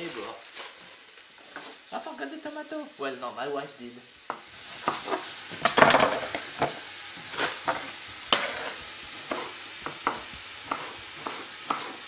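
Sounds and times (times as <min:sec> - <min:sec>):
vegetables sizzling in a pan: 0:00.0 - 0:12.0
knife slicing on wooden board: 0:07.4 - 0:12.0.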